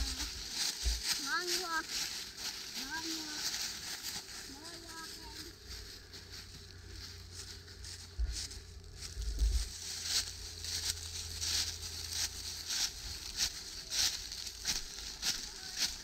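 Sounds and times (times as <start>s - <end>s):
footsteps crunching dry leaves: 0.0s - 16.0s
low microphone rumbles: 6.5s - 10.6s.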